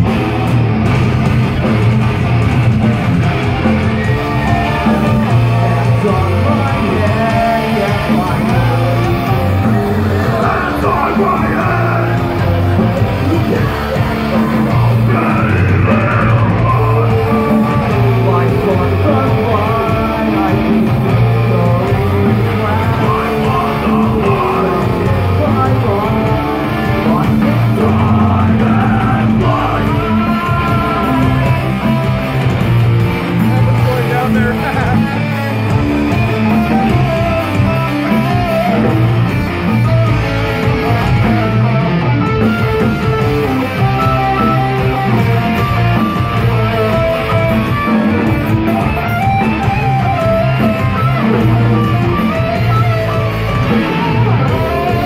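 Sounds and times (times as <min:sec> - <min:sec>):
heavy electric guitars: 0:00.0 - 0:55.0
live rock band: 0:00.0 - 0:55.0
person singing: 0:03.9 - 0:32.6, 0:33.4 - 0:41.9.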